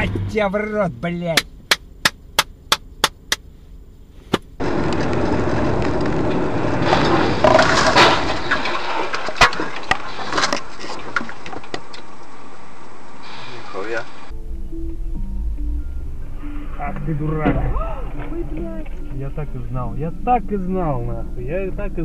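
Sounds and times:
road noise inside moving car: 0:00.0 - 0:07.5
car crash crunching metal: 0:04.6 - 0:11.8
debris knocks: 0:06.7 - 0:11.9.

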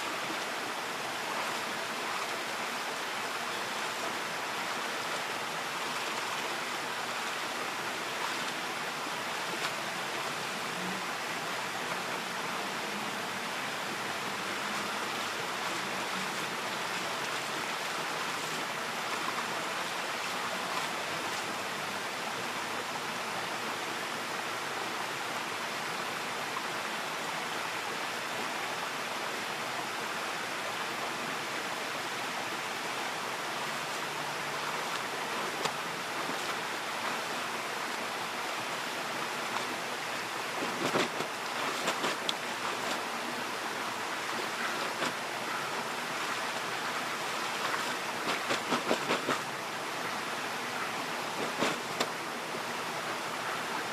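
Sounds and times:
creek water flowing over stones: 0:00.0 - 0:53.9
splashes of laundry in water: 0:34.5 - 0:37.3, 0:39.2 - 0:49.7, 0:51.1 - 0:52.2.

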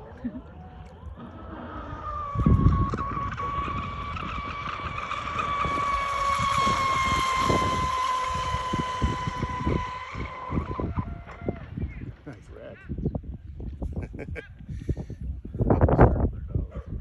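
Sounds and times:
electric motor whining: 0:00.0 - 0:12.7
wind buffeting microphone: 0:00.0 - 0:17.0.

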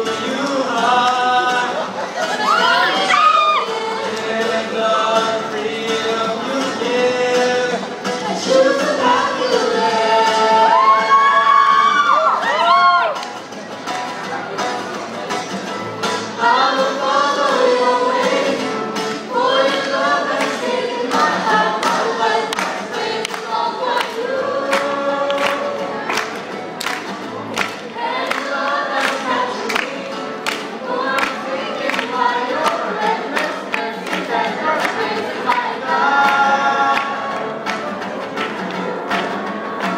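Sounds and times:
group singing in harmony: 0:00.0 - 0:12.2, 0:16.1 - 0:39.9.

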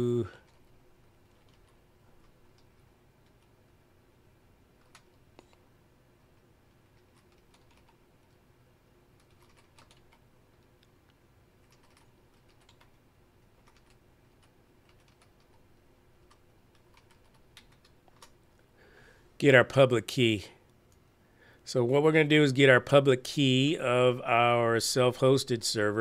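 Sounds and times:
faint keyboard typing: 0:00.1 - 0:03.6, 0:04.7 - 0:05.7, 0:06.3 - 0:18.7.

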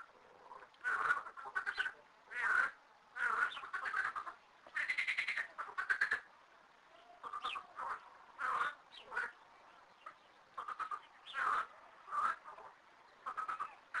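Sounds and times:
frog rattling pulses: 0:00.0 - 0:06.3
frog croaking: 0:00.0 - 0:06.4, 0:07.2 - 0:09.4, 0:10.0 - 0:14.0.

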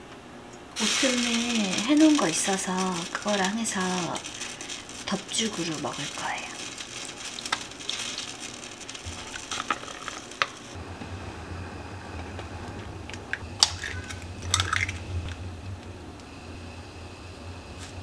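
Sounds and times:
low steady hum: 0:00.0 - 0:18.0
utensil stirring and scraping cookware: 0:00.8 - 0:10.8.

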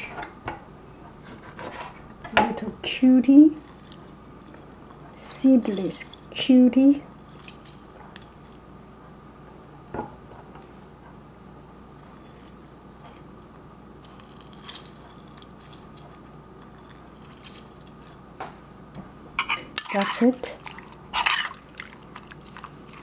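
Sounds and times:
fruit squishing and dripping: 0:07.2 - 0:08.6, 0:14.0 - 0:18.2.

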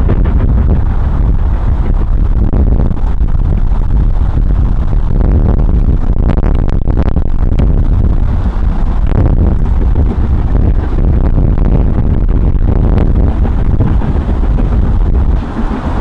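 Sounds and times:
wind buffeting microphone: 0:00.0 - 0:16.0
steam locomotives working: 0:12.7 - 0:16.0.

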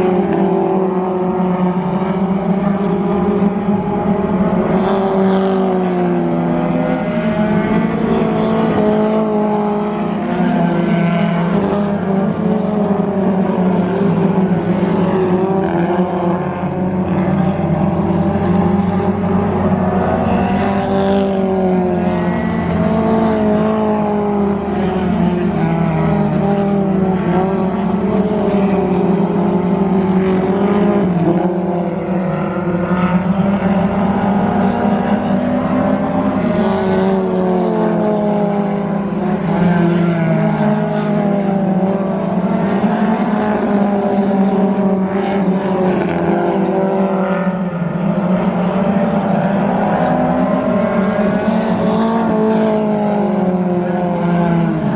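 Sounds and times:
race car engines: 0:00.0 - 0:54.9.

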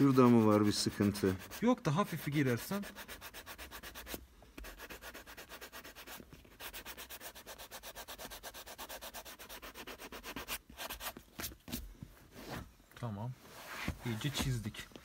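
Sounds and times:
hand sanding back and forth: 0:00.0 - 0:11.6.

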